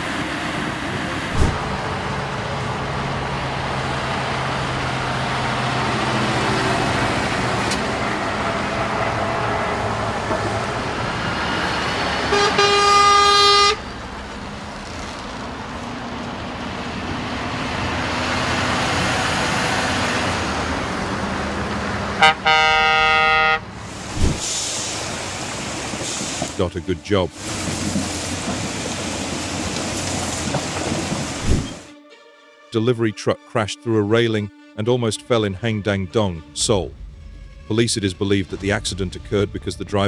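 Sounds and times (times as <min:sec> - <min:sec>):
traffic road and engine noise: 0:00.0 - 0:32.0, 0:36.2 - 0:40.0
vehicle horn blasts: 0:12.3 - 0:13.9, 0:22.2 - 0:23.6.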